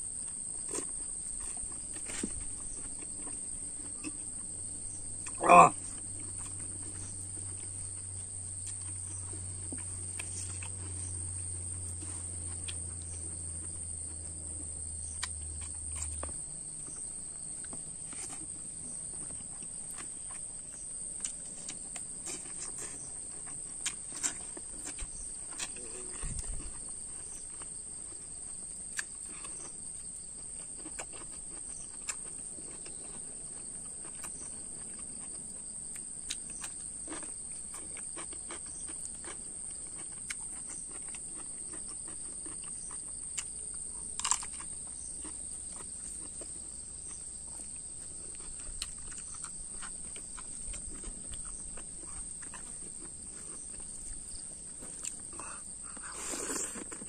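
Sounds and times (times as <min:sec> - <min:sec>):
insects droning: 0:00.0 - 0:57.0
chewing: 0:00.3 - 0:57.0
clicks and rustles of eating: 0:15.1 - 0:46.6, 0:47.2 - 0:57.0.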